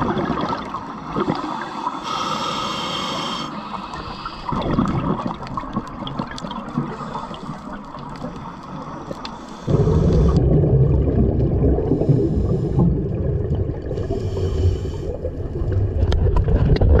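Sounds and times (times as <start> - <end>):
deep bubbling rush: 0.0 - 1.4, 4.4 - 6.9, 9.7 - 17.0
bubbles gurgling: 0.0 - 1.6, 4.4 - 7.2, 9.7 - 14.4, 15.1 - 17.0
diver breathing through regulator: 1.2 - 4.9, 6.8 - 10.5, 11.9 - 13.2, 13.8 - 15.4.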